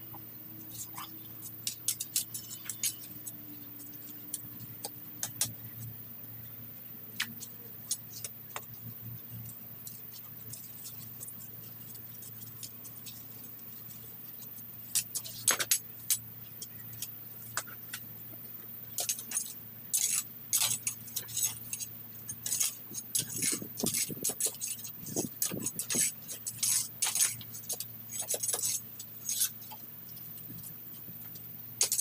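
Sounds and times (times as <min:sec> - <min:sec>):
low steady hum: 0:00.0 - 0:32.0
metal weeding tool scraping: 0:00.7 - 0:04.3, 0:19.0 - 0:29.8.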